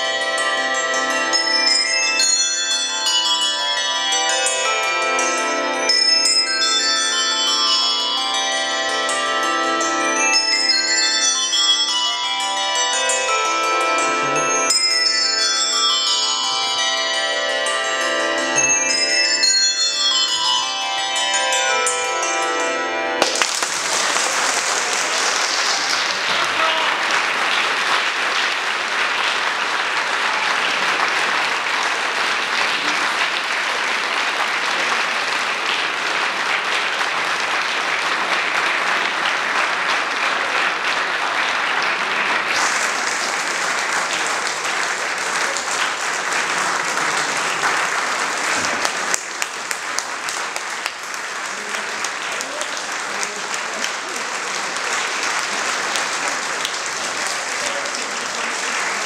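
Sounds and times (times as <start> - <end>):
handbells ringing: 0.0 - 26.9
audience applauding: 23.2 - 59.0.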